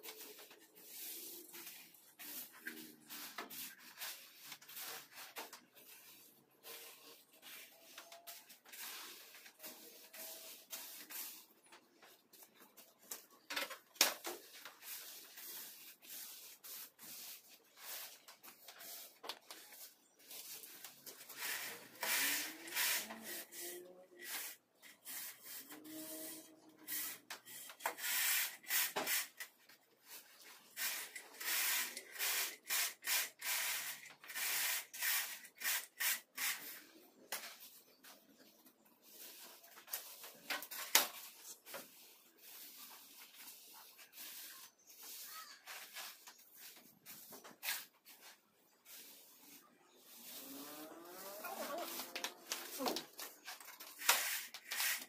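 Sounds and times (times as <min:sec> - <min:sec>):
trowel scraping wet screed: 0:14.5 - 0:29.5, 0:39.0 - 0:55.0.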